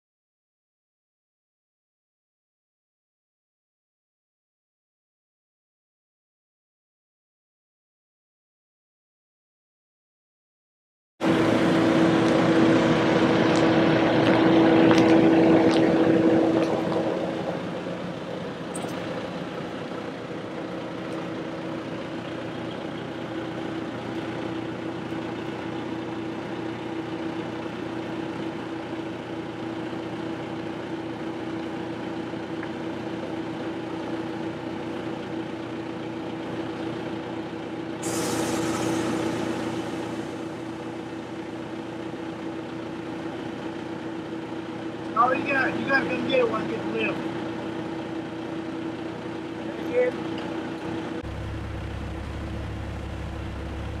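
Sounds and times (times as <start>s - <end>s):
engine running with hum: 11.2s - 54.0s
short burst of hiss: 38.0s - 40.6s.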